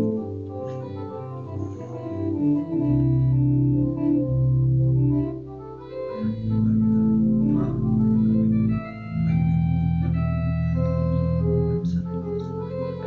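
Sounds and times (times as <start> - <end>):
church organ chords: 0.0 - 13.0.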